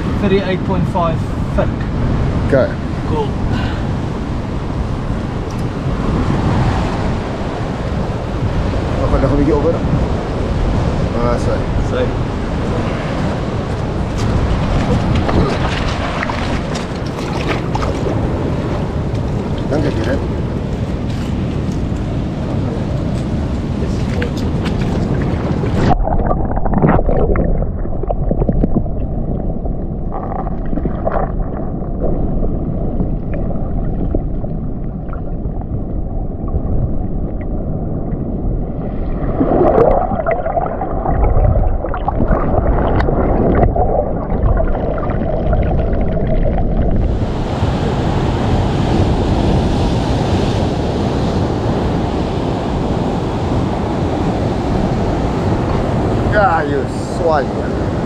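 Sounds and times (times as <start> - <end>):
waves breaking over rocks: 0.0 - 58.0
underwater water sloshing: 3.4 - 22.1, 23.1 - 48.0.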